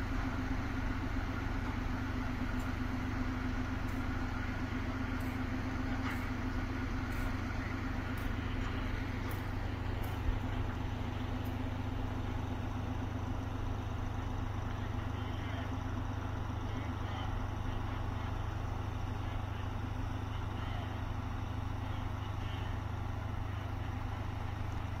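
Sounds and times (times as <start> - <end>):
diesel locomotive rumbling: 0.0 - 25.0.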